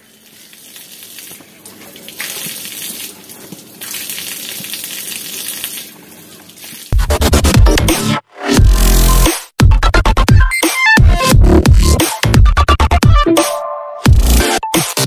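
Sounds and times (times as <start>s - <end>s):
tap water running and splashing: 0.0s - 7.0s.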